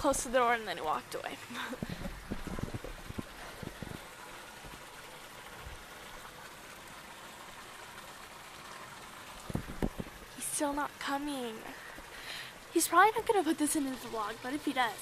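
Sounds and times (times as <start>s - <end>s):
faint steady hissing: 0.0s - 15.0s
soft low bumps: 1.7s - 4.8s, 9.4s - 10.3s.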